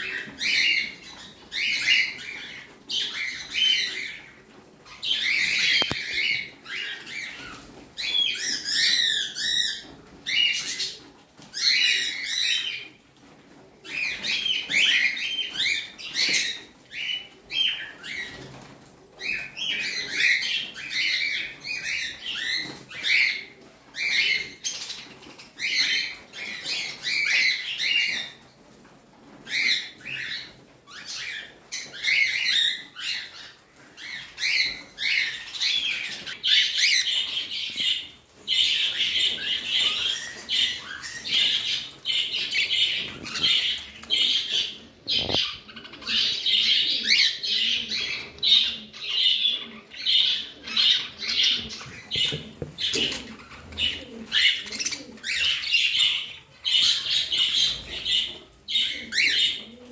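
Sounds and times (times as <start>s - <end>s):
budgerigars chattering and warbling: 38.7s - 59.7s.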